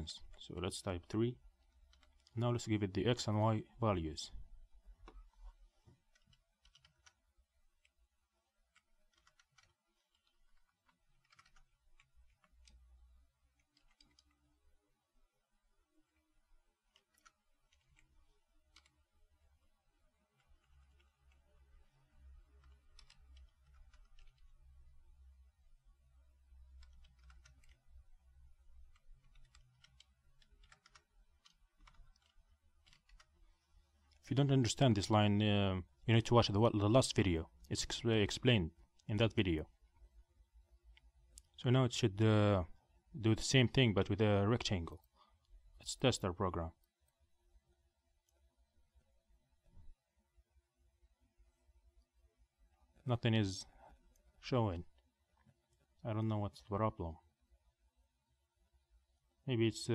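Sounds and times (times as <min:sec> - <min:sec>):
faint keyboard typing: 0:00.0 - 0:03.4, 0:04.2 - 0:14.8, 0:16.0 - 0:46.2
keyboard typing: 0:01.6 - 0:02.4, 0:06.0 - 0:07.9, 0:08.7 - 0:12.8, 0:13.6 - 0:14.4, 0:16.9 - 0:19.1, 0:20.2 - 0:21.8, 0:22.5 - 0:24.6, 0:26.7 - 0:28.0, 0:28.8 - 0:33.4.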